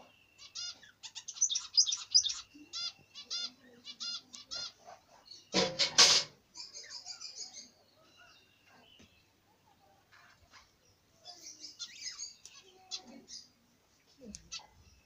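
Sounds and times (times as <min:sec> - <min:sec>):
budgerigars chirping: 0:00.0 - 0:05.6, 0:11.3 - 0:13.5.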